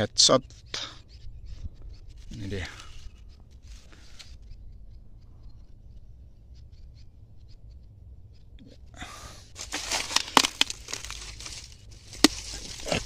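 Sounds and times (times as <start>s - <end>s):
faint low rumble: 0.0s - 13.0s
dry leaves and twigs rustling: 1.4s - 4.9s, 8.7s - 13.0s
twigs snapping: 9.6s - 13.0s.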